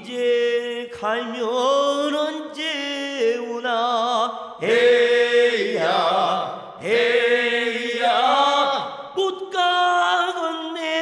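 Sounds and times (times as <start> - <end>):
chanted vocals: 4.2 - 10.7.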